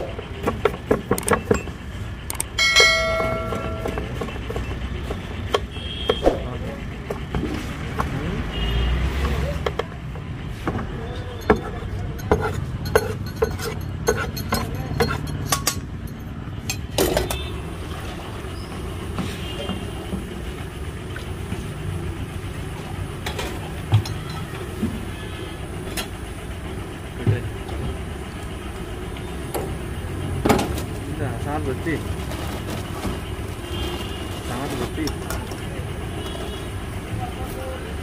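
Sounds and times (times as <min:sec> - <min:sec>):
street traffic rumble: 0:00.0 - 0:38.0
cooking utensil clatter: 0:11.3 - 0:17.5.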